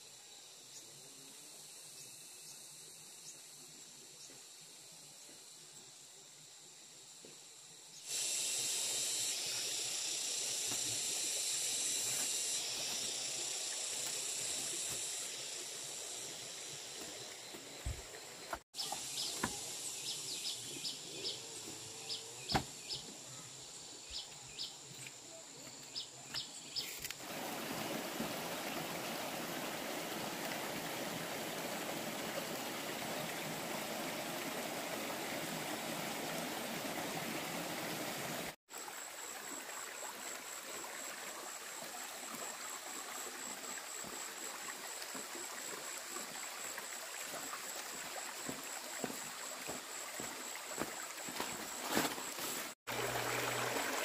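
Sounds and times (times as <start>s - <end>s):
stream water rushing: 27.2s - 54.0s.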